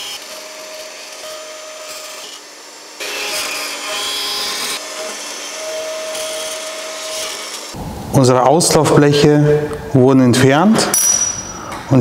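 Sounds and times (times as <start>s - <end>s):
saw motor hum: 0.0s - 7.8s.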